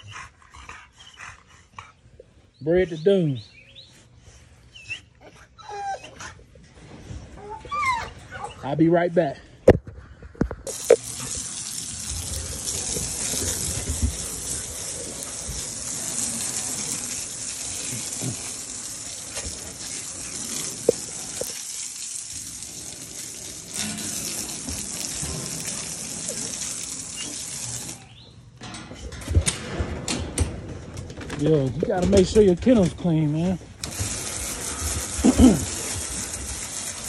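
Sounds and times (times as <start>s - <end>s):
hose spraying water on wood: 10.7s - 28.1s, 33.8s - 37.0s.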